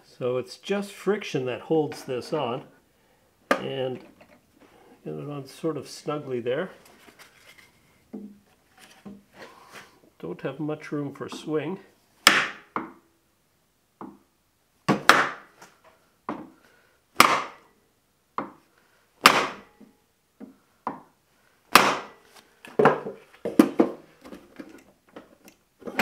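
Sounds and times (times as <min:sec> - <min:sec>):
hammer knocking wooden block: 0:12.3 - 0:13.0, 0:17.2 - 0:17.6, 0:19.2 - 0:19.6, 0:21.7 - 0:22.1.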